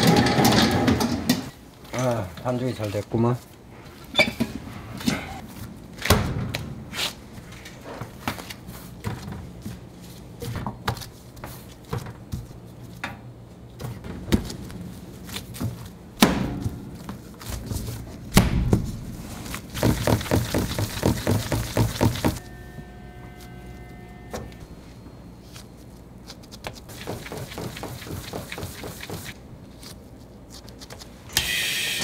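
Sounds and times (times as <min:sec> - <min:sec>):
utensils clattering on work surfaces: 0:00.0 - 0:01.5
low steady hum: 0:22.3 - 0:26.8.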